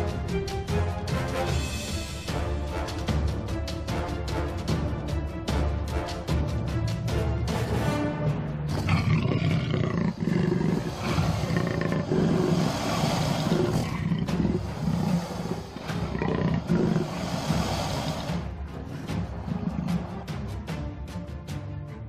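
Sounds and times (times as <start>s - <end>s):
background music: 0.0s - 22.0s
big cat growling and roaring: 8.7s - 20.5s.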